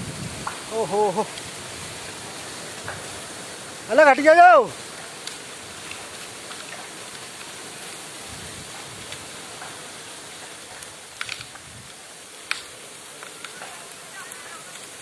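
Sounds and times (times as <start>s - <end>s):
water jetting under pressure: 0.0s - 15.0s
sharp clicks: 10.8s - 11.6s.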